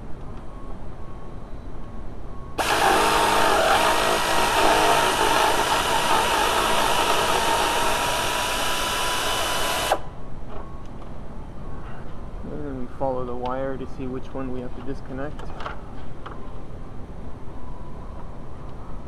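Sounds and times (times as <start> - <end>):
power ratchet whining: 2.6 - 10.1.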